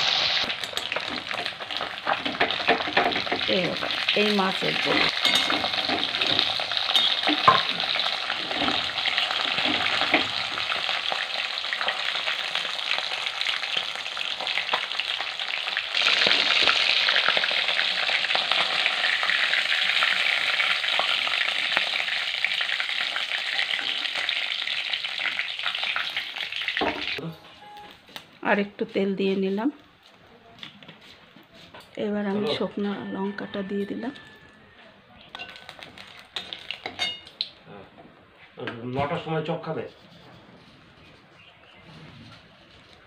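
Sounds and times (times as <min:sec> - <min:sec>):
fish sizzling in hot oil: 0:00.0 - 0:27.2, 0:35.4 - 0:37.3.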